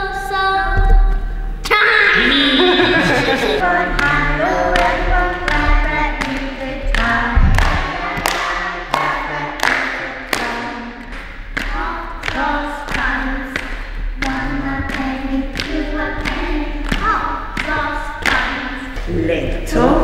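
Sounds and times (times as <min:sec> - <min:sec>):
children singing: 0:01.8 - 0:11.0, 0:11.6 - 0:19.0
hand claps: 0:04.0 - 0:19.2
low thud: 0:07.2 - 0:08.2.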